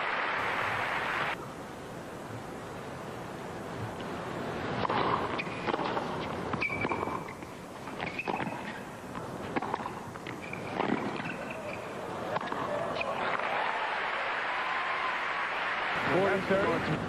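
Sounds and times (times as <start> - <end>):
stadium crowd hiss: 0.0 - 17.0
rackets striking tennis ball: 4.8 - 13.4
shoe squeaks: 5.4 - 7.4, 8.0 - 8.8, 10.4 - 11.9.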